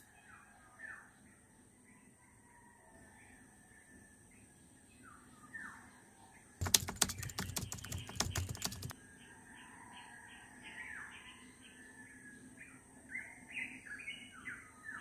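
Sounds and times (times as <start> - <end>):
birds chirping: 6.6 - 8.9
computer keyboard typing: 6.6 - 8.9.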